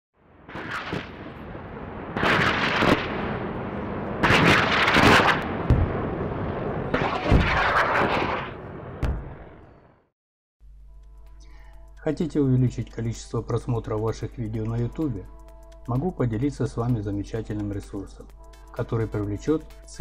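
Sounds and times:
deep booming hits: 4.2 - 6.2, 9.0 - 9.6
sharp boom: 4.2 - 9.8.

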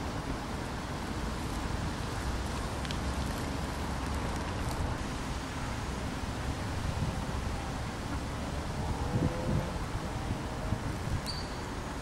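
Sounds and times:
wind buffeting microphone: 3.2 - 12.0.

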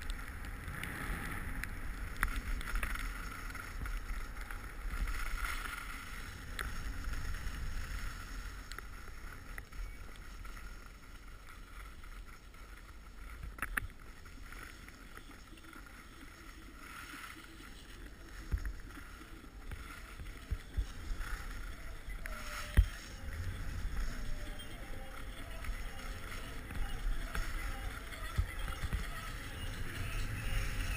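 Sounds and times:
skis scraping over snow: 0.0 - 30.9
wind rumbling on microphone: 0.0 - 30.9.

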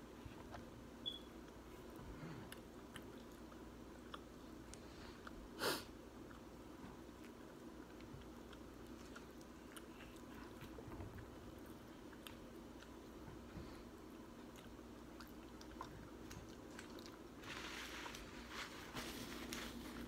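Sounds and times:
steady low hum: 0.0 - 20.0
faint chewing: 0.1 - 20.0
rustling: 17.4 - 20.0.

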